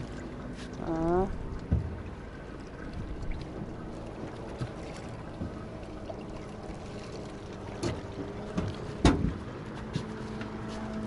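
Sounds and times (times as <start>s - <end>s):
water noise: 0.0s - 11.0s
wind: 0.0s - 11.0s
knocks on boat hull: 7.8s - 10.1s.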